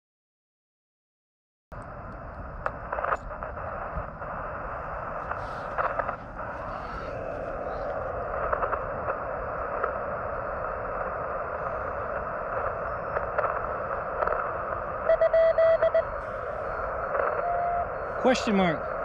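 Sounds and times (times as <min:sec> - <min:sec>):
radio receiver hiss and static: 0:01.8 - 0:19.0
morse code tones: 0:15.0 - 0:18.5.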